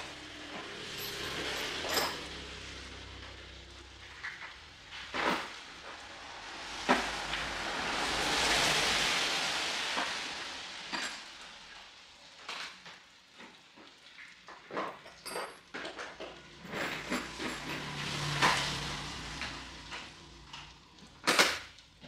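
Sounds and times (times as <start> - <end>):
hand tools clinking in toolbox: 0.0 - 3.4, 14.5 - 18.6
hiss: 0.0 - 13.2.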